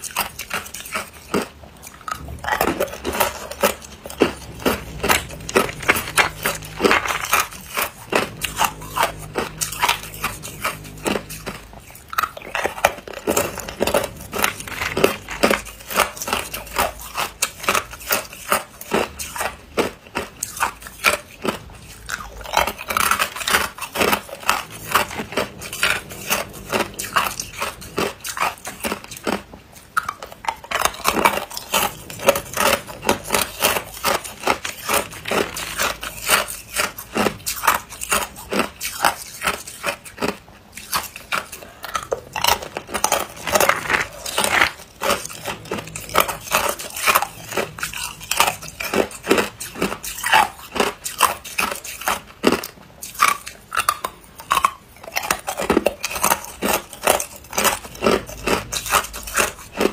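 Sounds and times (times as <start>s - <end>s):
ice cubes crunching in mouth: 0.0s - 59.9s.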